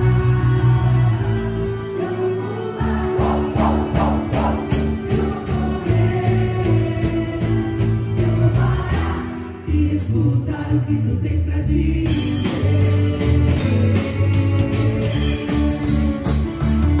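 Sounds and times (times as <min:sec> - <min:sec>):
worship band with singing: 0:00.0 - 0:17.0
steady drum beat: 0:03.2 - 0:07.6.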